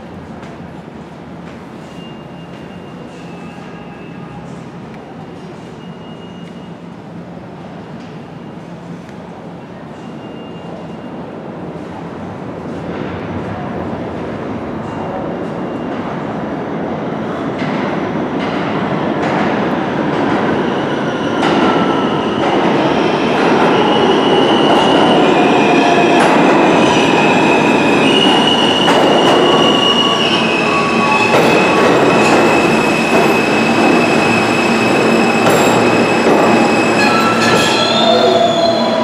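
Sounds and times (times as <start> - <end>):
train wheels rumbling on rails: 0.0 - 39.0
high brake squealing: 1.8 - 4.7, 5.4 - 6.9, 9.9 - 11.3, 26.6 - 39.0.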